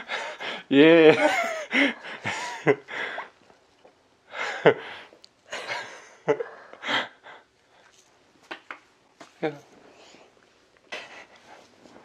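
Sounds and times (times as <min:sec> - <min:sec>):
soft breathy laughter: 0:04.3 - 0:07.5.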